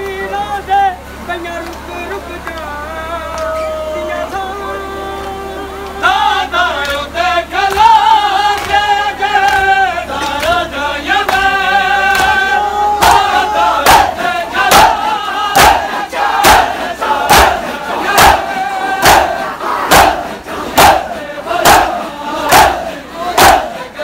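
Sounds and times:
men singing a lament: 0:00.0 - 0:24.0
men beating chests in unison: 0:06.8 - 0:24.0.

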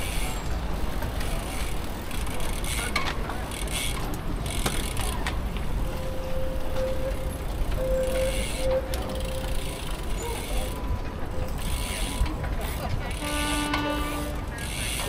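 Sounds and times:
bicycle freewheel ticking: 0:01.2 - 0:06.0, 0:07.0 - 0:10.9, 0:11.5 - 0:15.0
steady tone: 0:05.8 - 0:10.9.

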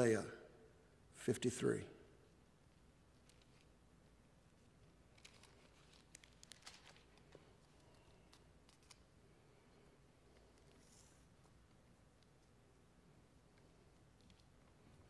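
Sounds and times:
book pages being turned: 0:05.1 - 0:09.1.

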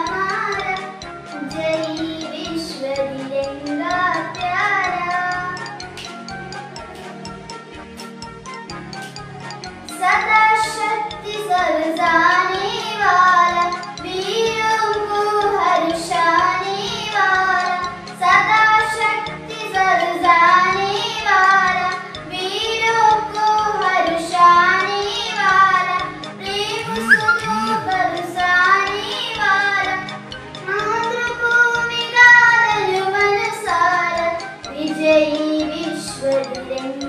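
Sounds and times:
instrumental backing with beat: 0:00.0 - 0:09.9, 0:26.6 - 0:28.6
girl singing: 0:01.4 - 0:05.6, 0:26.5 - 0:29.4.

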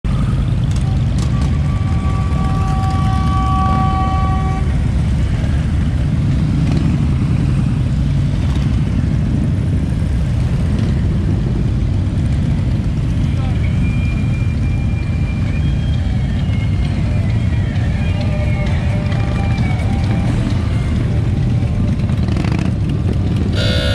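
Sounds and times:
motorcycles rumbling past: 0:19.7 - 0:23.9
horn held: 0:23.5 - 0:23.9.

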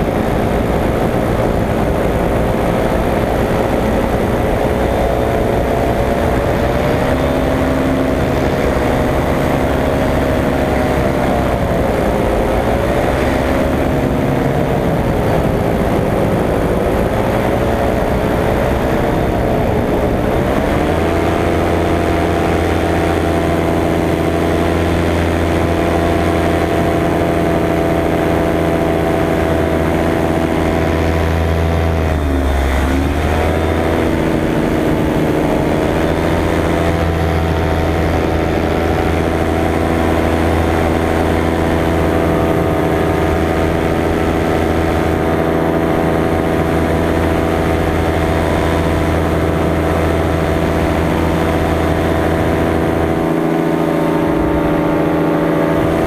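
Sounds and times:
paramotor engine and propeller: 0:00.0 - 0:56.0.

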